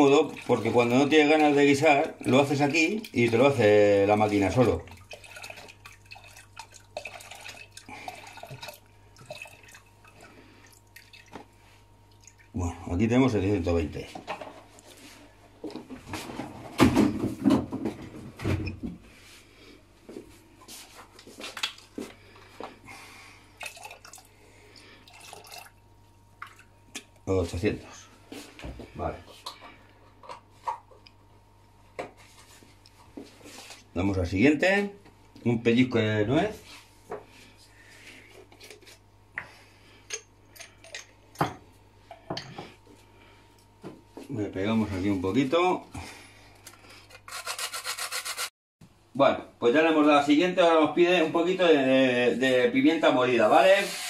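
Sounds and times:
faint steady hum: 0.0s - 47.7s
milk pouring into metal bowl: 23.6s - 25.8s.

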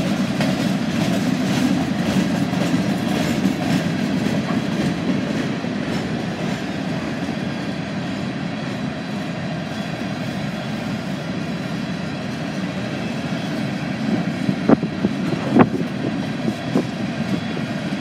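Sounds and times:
wheels clicking on rails: 0.0s - 7.7s
freight train rumbling: 0.0s - 18.0s.

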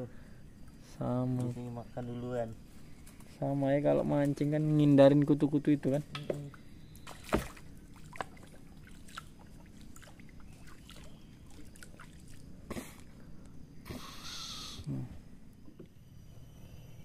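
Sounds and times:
water trickling and sloshing: 4.1s - 13.2s
water splashing: 6.4s - 12.6s.

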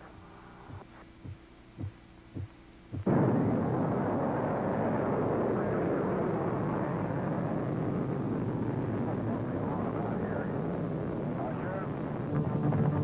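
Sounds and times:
rocket engines rumbling: 3.1s - 13.0s.

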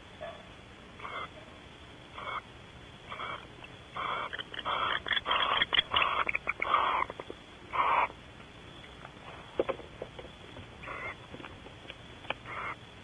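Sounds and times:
owls hissing calls: 1.0s - 1.4s, 2.1s - 8.2s, 10.8s - 11.2s, 12.4s - 12.8s.

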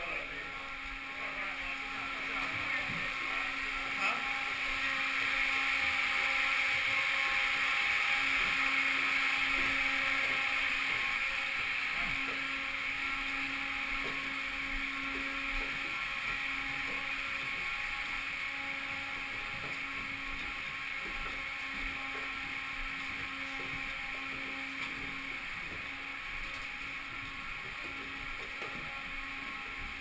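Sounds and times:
mechanical whirring hum: 0.0s - 30.0s
footsteps on concrete stairs: 8.2s - 30.0s.

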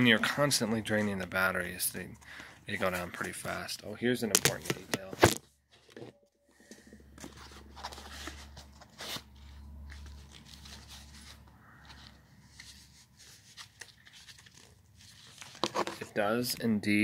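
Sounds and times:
clicks scrapes and rustles: 7.2s - 16.2s.

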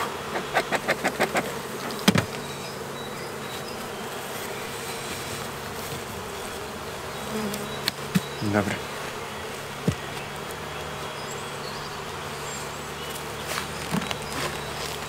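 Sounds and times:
bee smoker clicks: 0.0s - 3.8s, 5.0s - 11.2s
honeybees buzzing: 0.0s - 15.0s.

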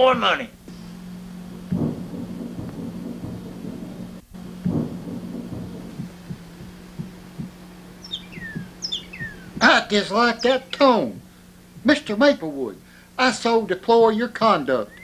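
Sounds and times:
low rumbling thumps: 0.0s - 13.2s
steady hum: 0.0s - 15.0s
short falling whistles: 7.9s - 9.6s.

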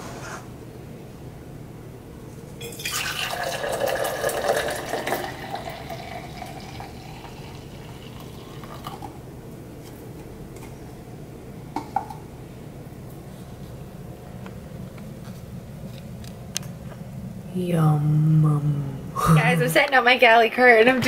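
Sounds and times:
coffee pouring into tumbler: 2.6s - 9.2s.

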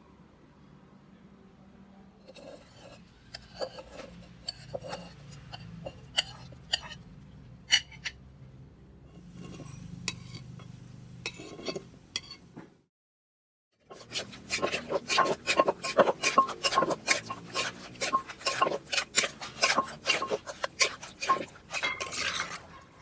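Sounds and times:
utensils clinking on clay mortar: 2.3s - 7.0s, 13.9s - 23.0s.

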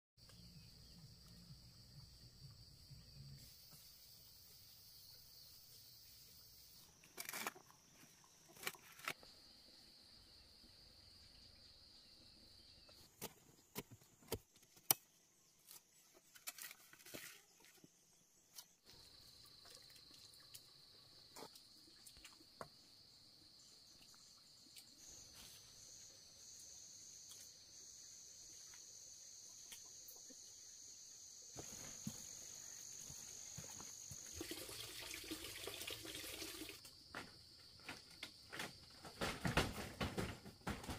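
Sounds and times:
insects trilling: 18.1s - 39.3s.

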